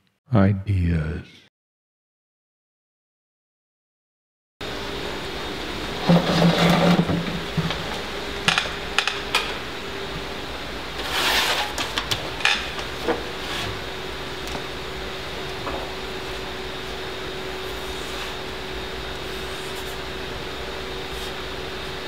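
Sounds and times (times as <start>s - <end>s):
steady low hum: 4.6s - 22.0s
scraping rub on desk: 11.0s - 11.8s, 17.6s - 18.5s, 19.2s - 20.0s, 21.0s - 21.9s.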